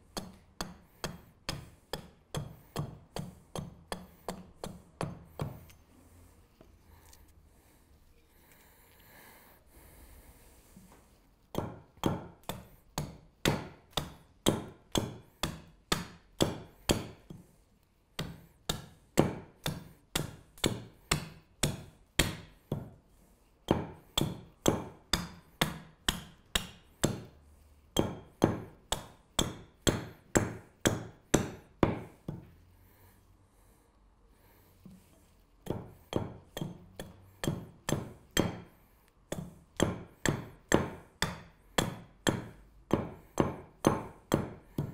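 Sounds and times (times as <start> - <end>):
axe chopping wood: 11.5 - 17.3, 18.2 - 22.9, 23.7 - 27.3, 28.0 - 32.4, 35.6 - 38.7, 39.3 - 44.9.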